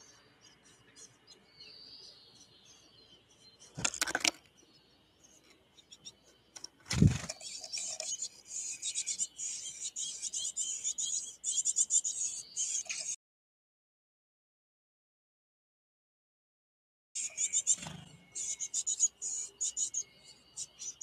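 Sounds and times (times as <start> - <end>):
chickadee chirps: 0.0 - 13.2, 17.2 - 21.0
loud thump on birdhouse: 6.8 - 7.3.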